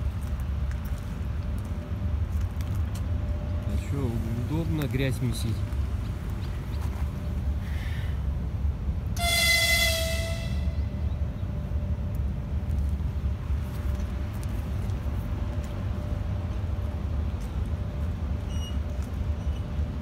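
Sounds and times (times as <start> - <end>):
steady low rumble: 0.0 - 20.0
locomotive horn toot: 9.2 - 10.9.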